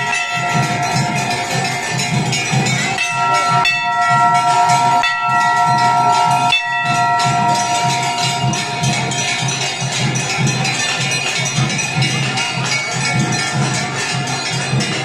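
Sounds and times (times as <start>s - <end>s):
crowd noise: 0.0s - 15.0s
drum beat: 0.0s - 15.0s.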